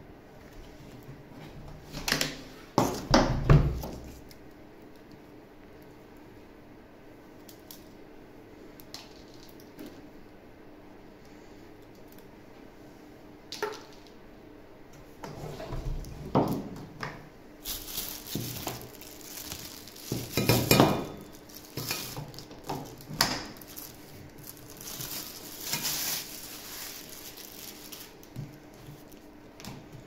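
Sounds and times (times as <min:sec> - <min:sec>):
plastic wrapping rustling: 0:17.6 - 0:29.3.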